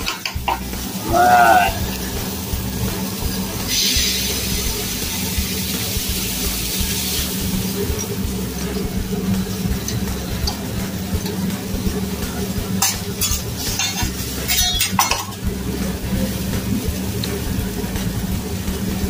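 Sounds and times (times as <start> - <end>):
food sizzling on griddle: 0.0 - 19.0
low hum: 0.4 - 12.8.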